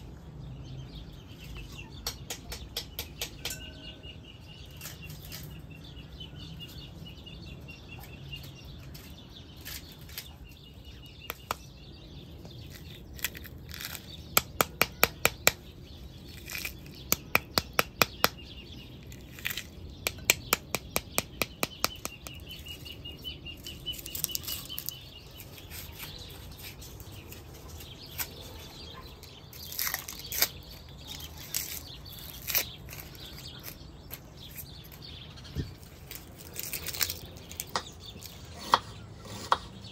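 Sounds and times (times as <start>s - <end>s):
faint high chirp: 3.4s - 11.7s
dry onion skin crackling: 4.6s - 5.9s, 8.1s - 38.6s.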